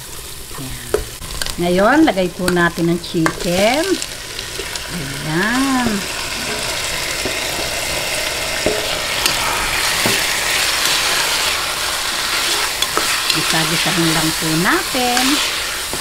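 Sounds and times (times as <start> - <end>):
chicken sizzling in oil: 0.0 - 16.0
ladle scraping and knocking pot: 5.8 - 11.6.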